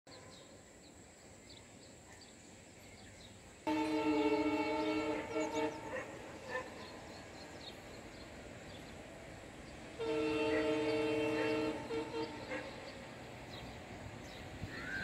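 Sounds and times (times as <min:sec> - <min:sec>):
locomotive air horn: 0:03.7 - 0:06.6, 0:09.9 - 0:12.9.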